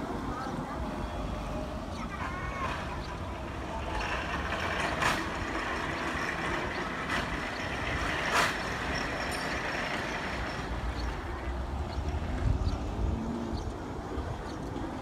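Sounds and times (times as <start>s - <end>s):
bus engine running: 0.0s - 15.0s.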